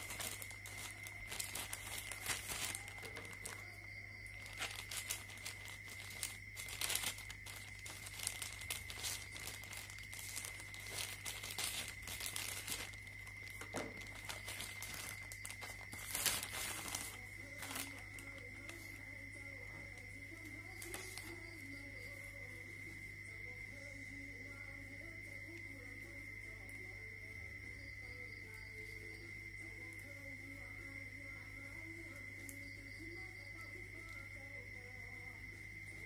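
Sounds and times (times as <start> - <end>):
plastic mailer bag crinkling: 0.0 - 19.2, 19.9 - 21.4.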